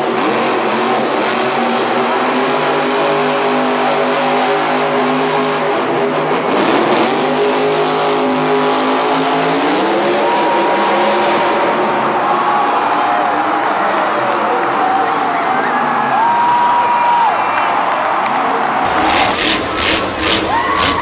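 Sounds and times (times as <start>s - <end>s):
monster truck engine revving: 0.0s - 12.0s, 18.8s - 21.0s.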